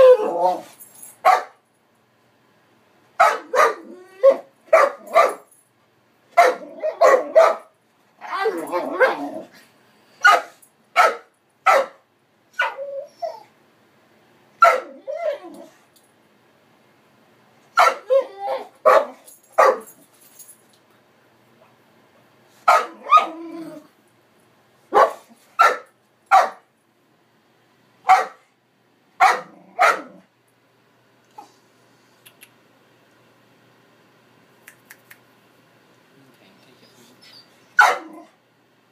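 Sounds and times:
dog barking: 1.2 - 1.6, 3.2 - 5.5, 6.4 - 7.7, 10.2 - 12.0, 14.6 - 14.9, 17.8 - 18.1, 18.8 - 19.9, 22.7 - 23.3, 24.9 - 26.6, 28.0 - 28.5, 29.2 - 30.2, 37.8 - 38.2.

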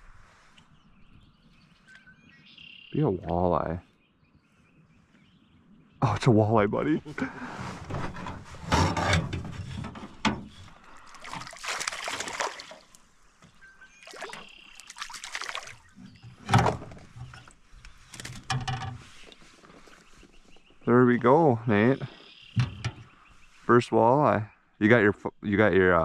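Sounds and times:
fish splashing in water: 10.8 - 13.1, 14.0 - 16.2.

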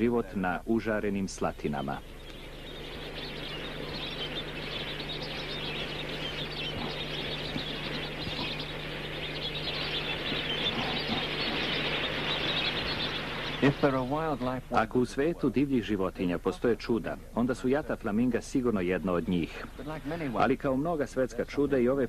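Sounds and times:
flock of flamingos calling: 1.5 - 15.0, 18.7 - 20.8.

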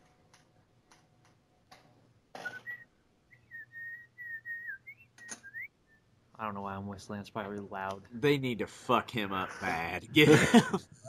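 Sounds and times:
man whistling a tune: 2.4 - 6.1.

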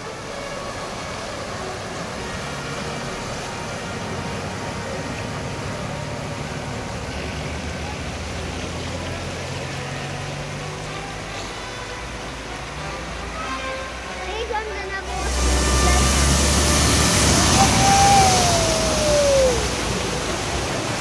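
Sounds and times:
rushing floodwater: 0.0 - 21.0
car engine hum: 14.8 - 21.0.

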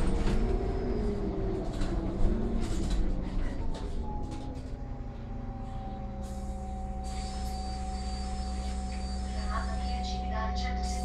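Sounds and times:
bus engine idling hum: 0.0 - 11.0
bus rattles and knocks: 0.0 - 11.0
high electronic beeping: 7.1 - 11.0.

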